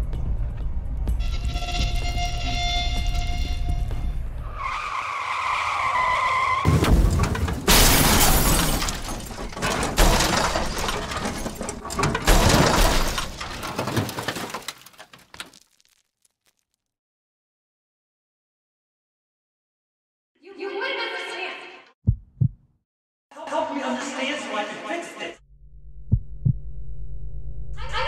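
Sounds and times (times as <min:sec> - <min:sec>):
car tyres screeching: 0:01.2 - 0:07.3
car crash impacts: 0:06.6 - 0:15.6
glass breaking: 0:06.7 - 0:16.6.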